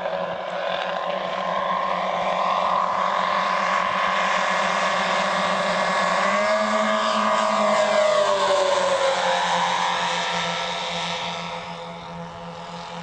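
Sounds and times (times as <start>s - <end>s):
model airplane engines droning: 0.0s - 13.0s.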